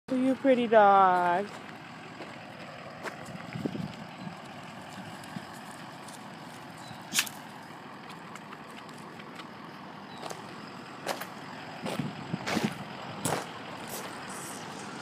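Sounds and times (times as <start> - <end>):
outdoor background noise: 0.1 - 15.0
loud sharp click: 7.1 - 7.4.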